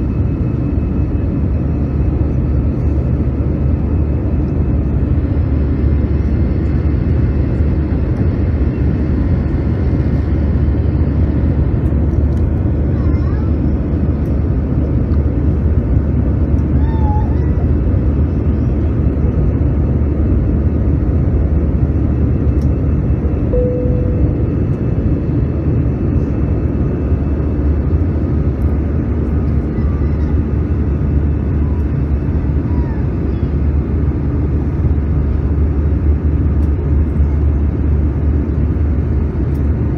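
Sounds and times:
aircraft engine and airflow noise: 0.0 - 39.9.

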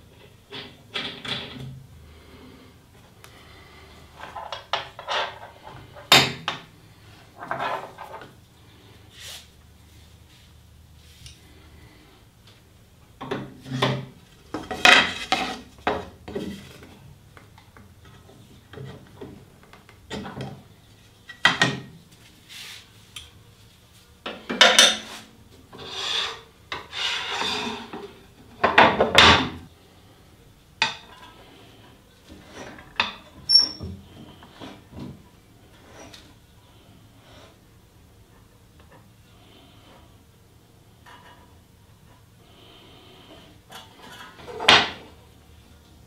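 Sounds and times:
rubbing scrapes on metal table: 22.5 - 22.9, 25.0 - 28.2.

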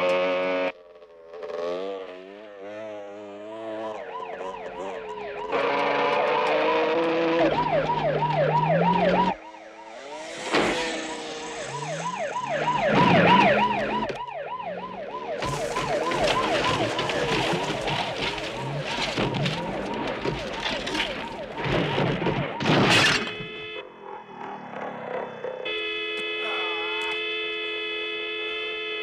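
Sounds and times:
vehicle engine revving: 0.0 - 22.6
police siren yelping: 2.5 - 28.9.

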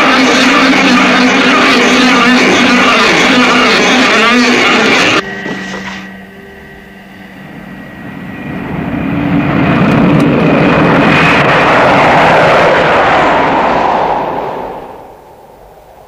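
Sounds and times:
faint steady tones: 0.0 - 11.5
loud noise cutting off: 0.0 - 13.4
jet engines roaring overhead: 0.0 - 16.0.

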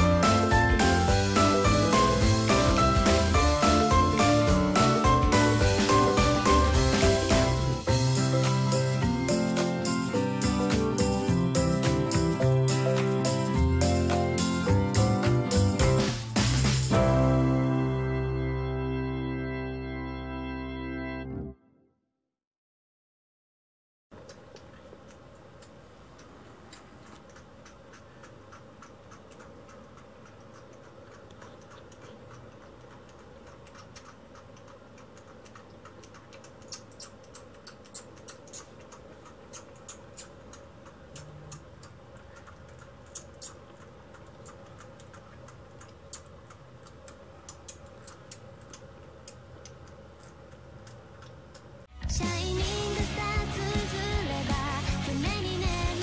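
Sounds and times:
low room hum: 0.0 - 20.4, 24.2 - 56.0
kitten suckling from bottle: 24.2 - 51.9.

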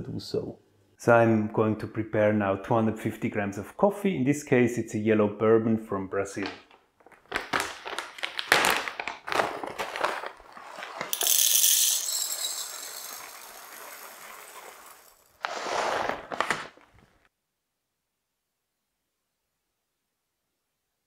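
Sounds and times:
coffee beans rattling into glass: 10.6 - 15.4.

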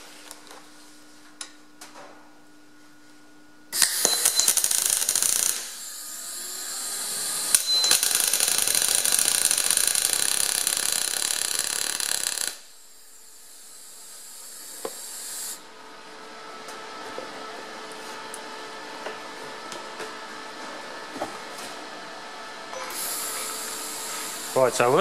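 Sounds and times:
quiet welder hiss: 0.0 - 15.8, 22.8 - 25.0
welder arc crackling: 3.8 - 12.8, 23.0 - 25.0.

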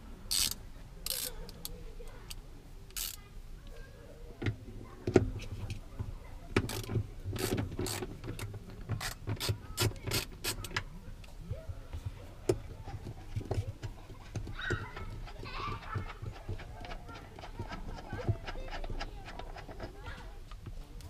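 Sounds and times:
ratchet and socket clicking: 0.3 - 1.7, 2.3 - 3.2, 6.6 - 10.8.

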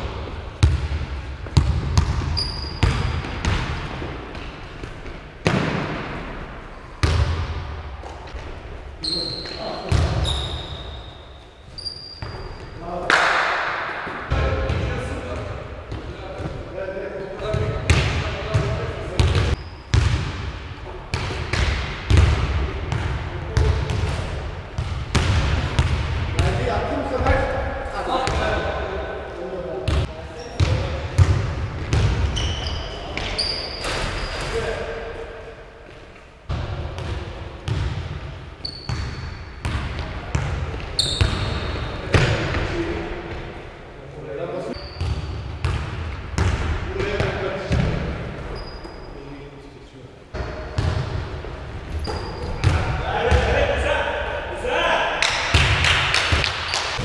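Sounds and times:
basketballs bouncing on wooden floor: 0.0 - 6.2, 7.0 - 7.6, 9.5 - 10.6, 17.4 - 24.2, 24.8 - 27.5, 29.9 - 34.0, 36.5 - 42.7, 44.9 - 48.7, 50.4 - 51.2, 51.9 - 53.6
short high squeak: 10.2 - 12.6, 52.0 - 52.6.

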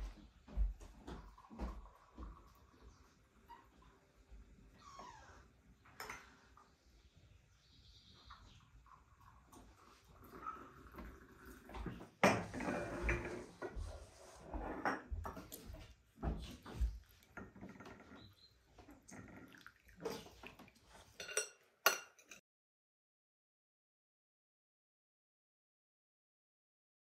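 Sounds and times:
forks scraping on plates: 21.0 - 22.4
glasses and saucers clinking: 21.2 - 22.4.

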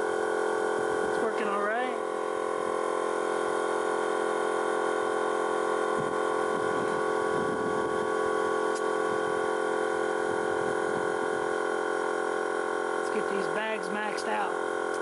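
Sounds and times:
air compressor humming: 0.0 - 15.0.

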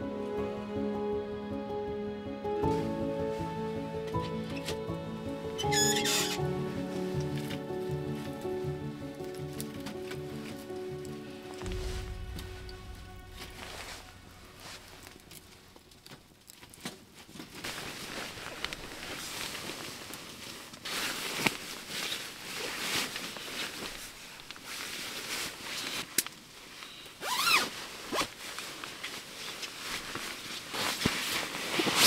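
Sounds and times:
nylon fabric rustling: 17.0 - 32.0
sleeping bag zipper: 27.2 - 28.3.

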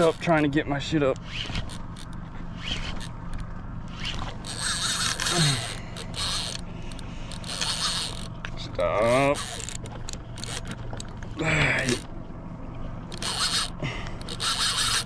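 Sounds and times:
boat low hum: 0.0 - 15.0
fishing reel rasping: 1.1 - 8.4, 9.0 - 10.8, 11.8 - 12.1, 13.1 - 15.0
person grunting: 5.3 - 5.8, 11.4 - 12.0.

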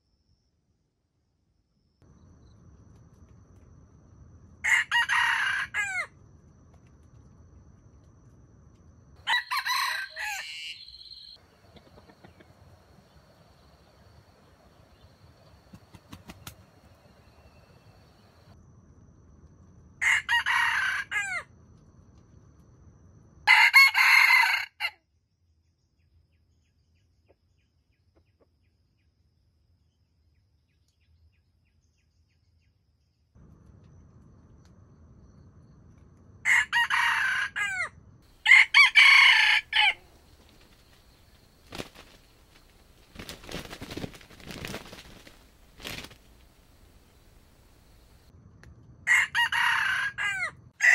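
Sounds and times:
rooster crowing: 4.6 - 6.2, 9.2 - 14.7, 20.0 - 21.5, 23.5 - 25.0, 36.4 - 42.7, 49.1 - 50.9.

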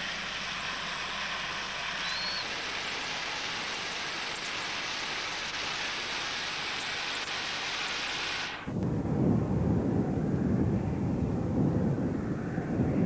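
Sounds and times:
steam locomotive hissing rush: 0.0 - 9.4.

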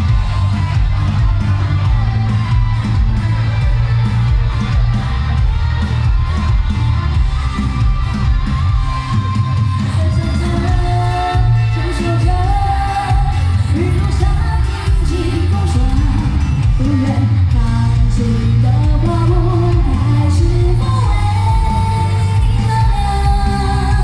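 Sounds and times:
loud backing music: 0.0 - 24.0
woman singing into microphone: 7.1 - 24.0.

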